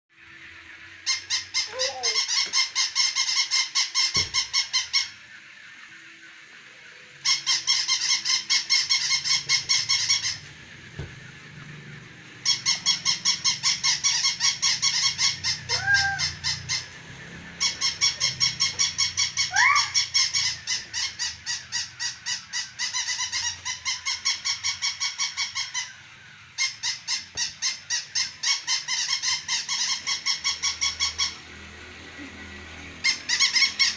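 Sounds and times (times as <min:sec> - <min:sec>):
toy dog electronic barking: 0:01.1 - 0:03.5, 0:12.5 - 0:24.4.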